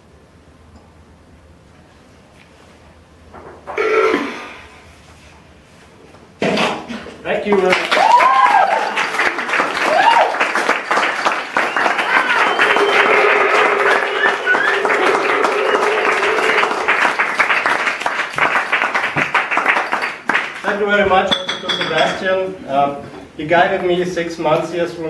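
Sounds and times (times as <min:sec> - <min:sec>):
audience applauding and cheering: 0:07.5 - 0:20.6
person whooping: 0:07.9 - 0:09.0, 0:09.8 - 0:10.6, 0:11.6 - 0:17.7.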